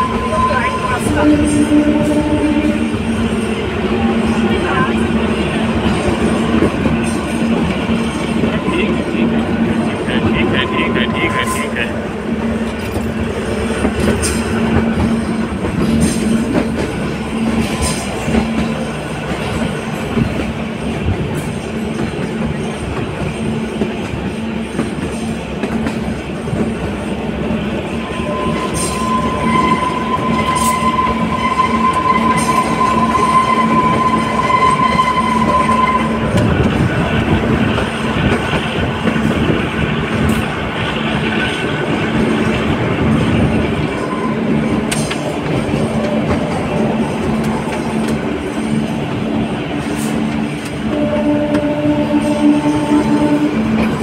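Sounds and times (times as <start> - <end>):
train coaches rumbling and rattling: 0.0 - 54.0.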